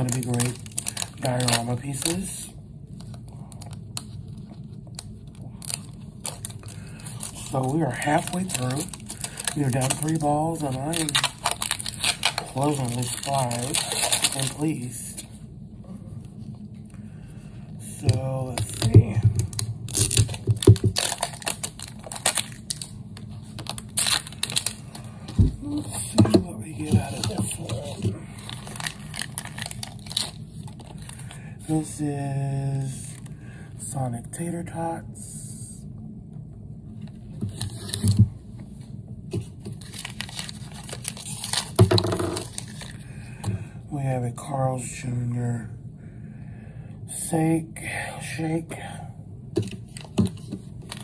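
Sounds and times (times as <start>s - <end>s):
packaging rustling: 0.0s - 2.3s, 3.0s - 15.3s, 18.0s - 31.4s, 39.4s - 43.0s, 49.6s - 51.0s
plastic wrapper crinkling and tearing: 0.0s - 15.3s, 18.0s - 31.4s, 39.5s - 43.1s, 49.6s - 51.0s.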